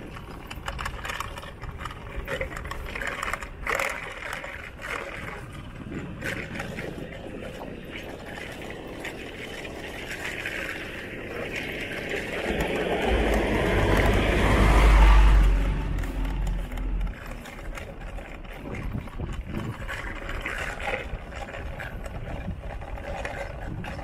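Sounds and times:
truck driving past: 12.4s - 17.8s.

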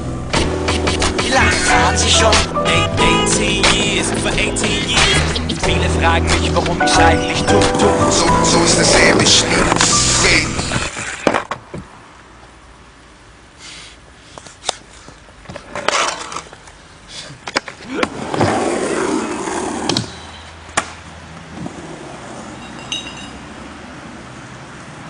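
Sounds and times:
skateboard wheels rolling: 8.4s - 12.1s, 15.1s - 23.3s
skateboard clacking on ground: 15.4s - 16.8s, 17.4s - 23.4s.

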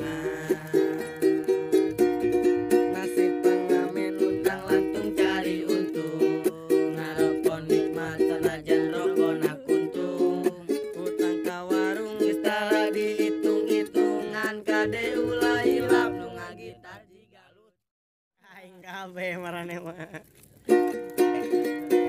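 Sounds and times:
ukulele strummed: 0.0s - 17.0s, 20.4s - 22.0s
young man singing: 0.0s - 17.7s.

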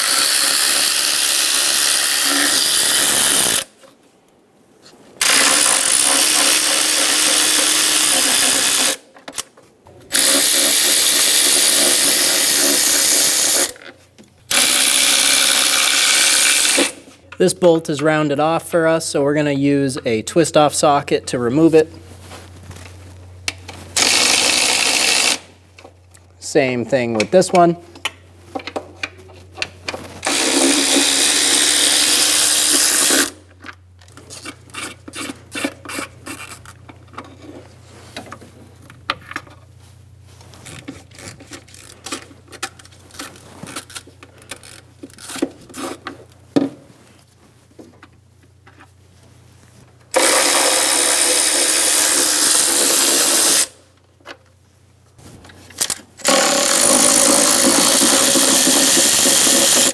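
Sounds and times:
power tool spinning bolts: 0.0s - 3.7s, 5.2s - 9.0s, 10.1s - 13.8s, 14.5s - 17.1s, 24.0s - 25.5s, 30.2s - 33.4s, 50.1s - 53.8s, 55.8s - 59.9s.

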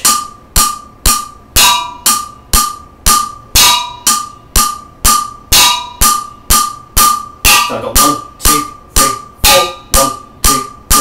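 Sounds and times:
drumsticks striking metal pot: 0.0s - 11.0s.

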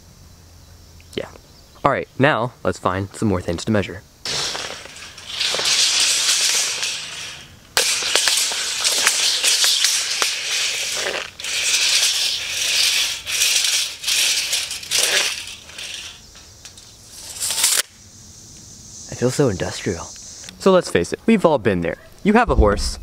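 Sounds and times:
tape measure blade rattling: 4.3s - 17.9s.

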